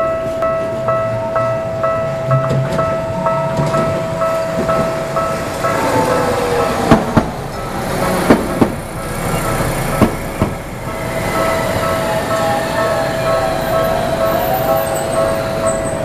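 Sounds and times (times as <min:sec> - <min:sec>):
level crossing bell ringing: 0:00.0 - 0:07.0, 0:10.8 - 0:16.0
tram falling whine: 0:00.0 - 0:16.0.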